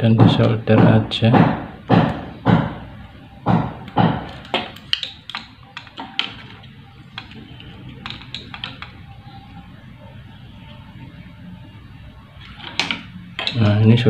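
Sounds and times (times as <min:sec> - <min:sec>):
banging knocks: 0:00.0 - 0:09.0
low steady background noise: 0:00.0 - 0:14.0.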